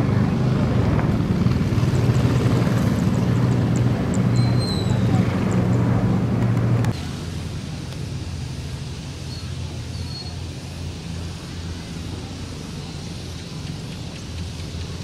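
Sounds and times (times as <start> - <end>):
distant propeller planes droning: 0.0 - 15.0.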